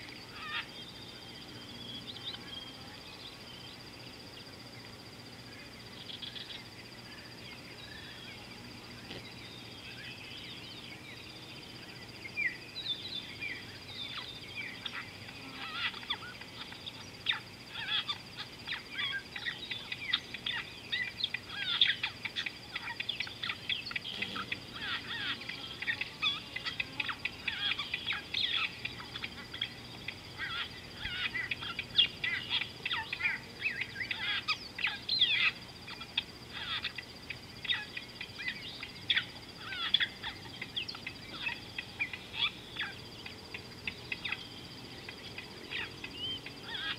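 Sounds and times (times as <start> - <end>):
birds chirping and chattering: 0.0 - 46.9.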